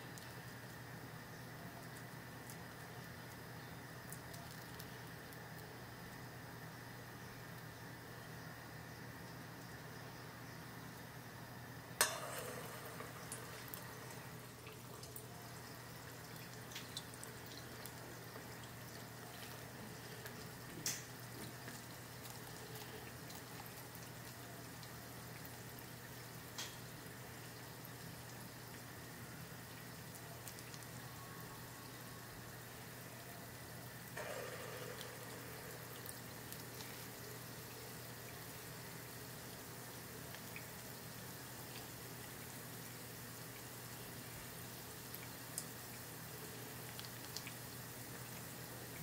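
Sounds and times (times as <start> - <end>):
small ticks and clicks: 0.0 - 6.3, 12.0 - 31.1, 34.1 - 49.0
oil sizzling: 11.9 - 49.0
splash into hot oil: 12.0 - 15.7.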